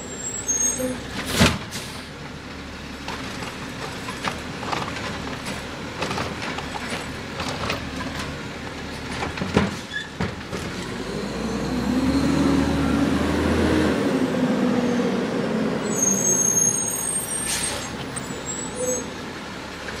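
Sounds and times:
high brake squeal: 0.0 - 1.1, 15.8 - 19.2
garbage truck diesel engine: 0.0 - 20.0.

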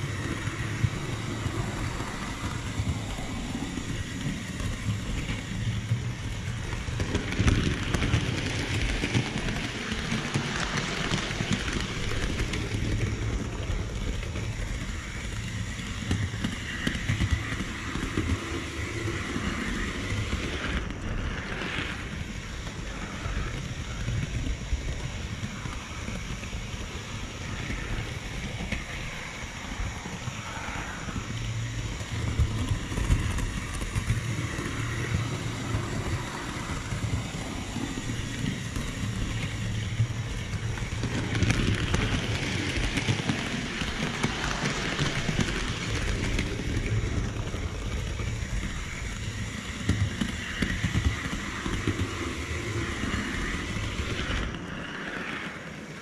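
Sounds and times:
model train wheels and motor rumble: 0.0 - 56.0.

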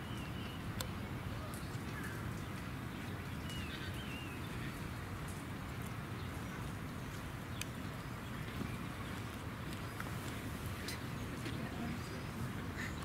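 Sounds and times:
bird chirp: 0.0 - 5.0.

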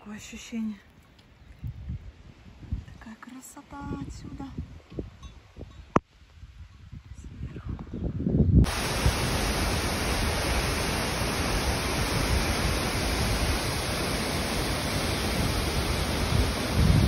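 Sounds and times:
wind rumble on microphone: 1.3 - 17.0
waterfall roar: 8.7 - 17.0.

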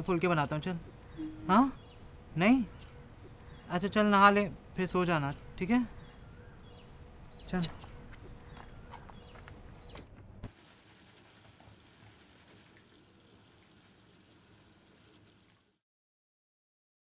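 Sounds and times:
faint steady hiss: 0.0 - 7.6
insects chirping: 0.0 - 10.5.

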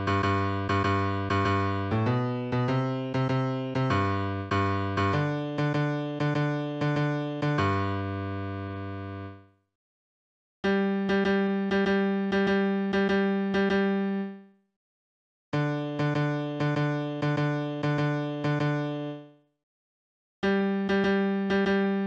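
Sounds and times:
synthesized piano bass notes: 0.0 - 9.4.

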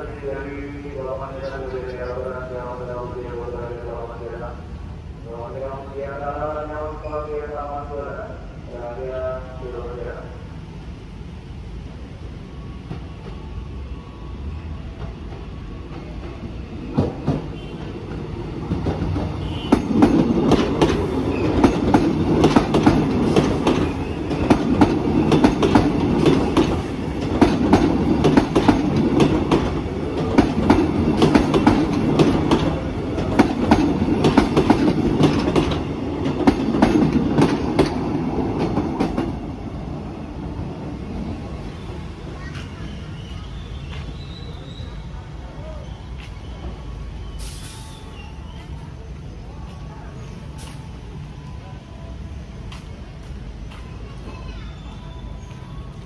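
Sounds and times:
train wheels clattering over rails: 14.9 - 40.7.

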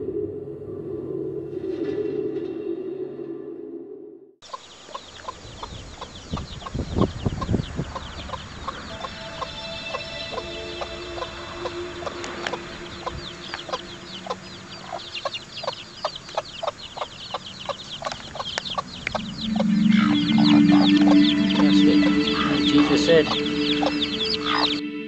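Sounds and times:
chicks peeping: 4.4 - 24.8
hen clucking: 4.4 - 24.8
loud low drone: 8.4 - 15.7, 18.8 - 25.0.

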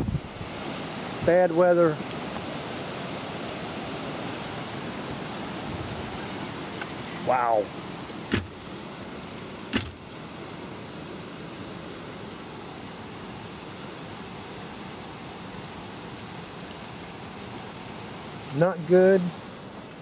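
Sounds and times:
strong wind rushing: 0.0 - 1.3.

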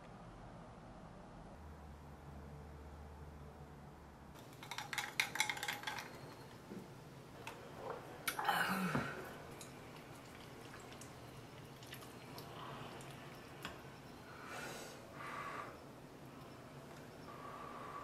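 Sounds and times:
spoon and chopsticks in bowl: 4.5 - 6.6
liquid dripping: 7.4 - 14.4
soft chewing: 9.2 - 13.8.

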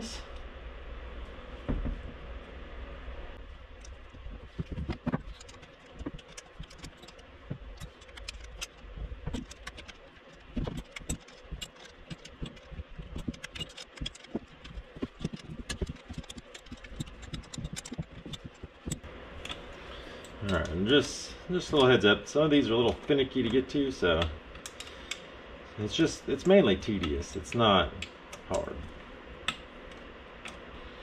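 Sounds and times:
small metal parts clicking: 3.8 - 19.6, 24.6 - 25.2.

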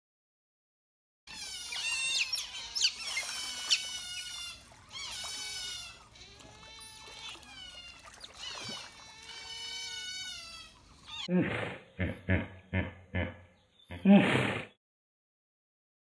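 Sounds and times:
otters squealing chirps: 1.3 - 11.3.

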